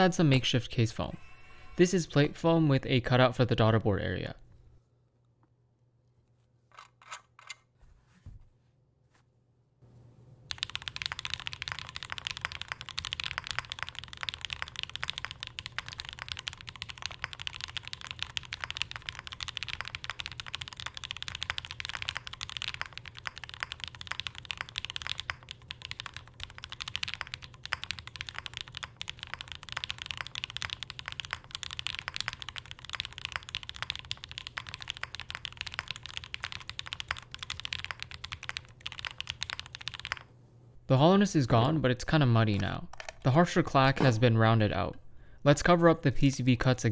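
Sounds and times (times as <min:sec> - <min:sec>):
fast typing on mechanical keyboard: 0:10.5 - 0:40.3.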